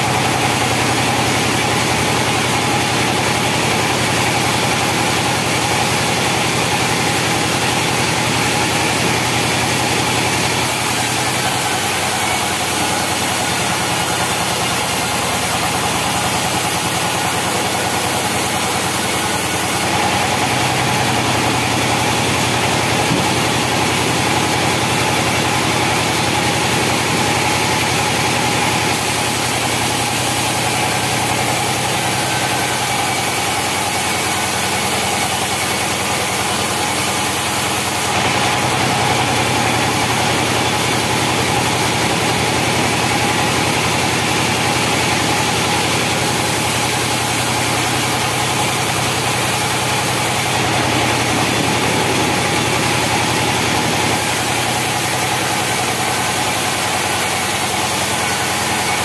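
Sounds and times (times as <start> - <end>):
engine running: 0.0 - 59.0
sawmill saw cutting timber: 0.0 - 59.0.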